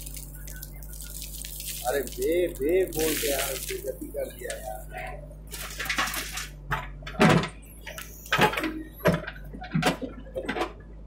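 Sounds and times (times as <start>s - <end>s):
diesel engine running: 0.0s - 11.0s
soil and stones clattering into truck: 5.5s - 10.8s.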